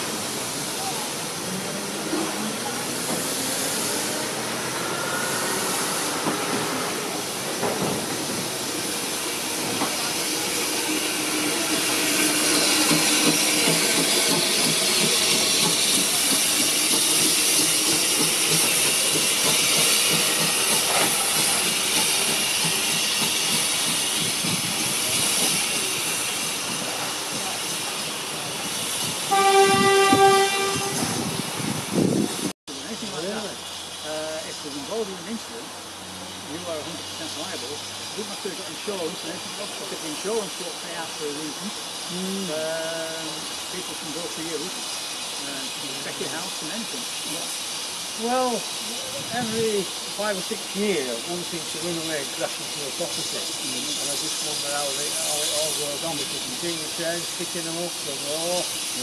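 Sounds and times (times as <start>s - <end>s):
train coaches rolling on rails: 0.0s - 59.0s
steam locomotive whistle: 29.2s - 31.4s.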